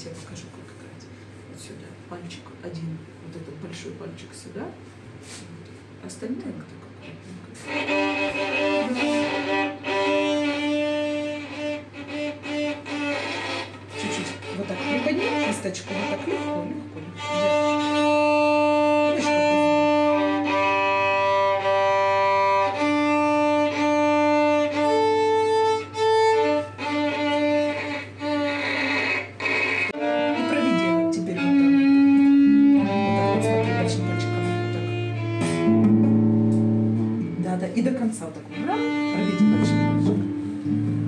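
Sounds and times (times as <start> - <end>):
guitar: 7.5 - 41.0
violin playing slow melody: 7.6 - 37.2, 38.5 - 40.8.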